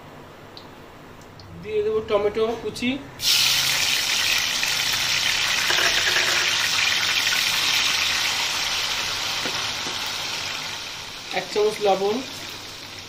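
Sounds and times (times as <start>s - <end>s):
tomatoes sizzling in hot oil: 3.2s - 13.0s.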